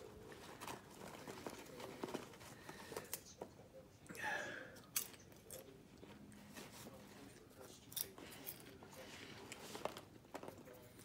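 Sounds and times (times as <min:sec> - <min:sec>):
paper bag rustling and crinkling: 0:00.0 - 0:03.1.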